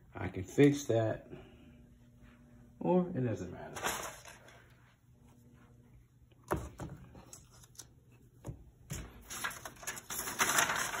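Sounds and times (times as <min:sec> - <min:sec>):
crinkly paper rustling: 0:03.7 - 0:04.7, 0:09.0 - 0:11.0.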